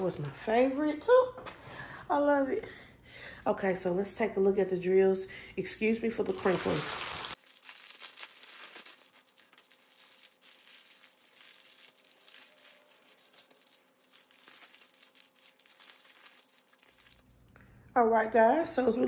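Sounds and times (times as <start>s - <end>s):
plastic wrapping crinkling: 6.2s - 17.5s.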